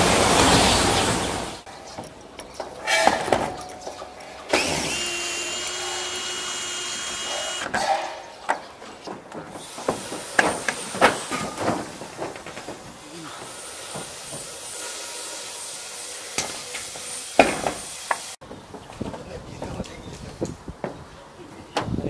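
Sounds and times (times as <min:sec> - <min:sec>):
knocks and clanks on metal sheeting: 0:02.0 - 0:04.0, 0:07.6 - 0:14.7, 0:17.4 - 0:19.8
power drill driving screw into metal: 0:04.5 - 0:08.2.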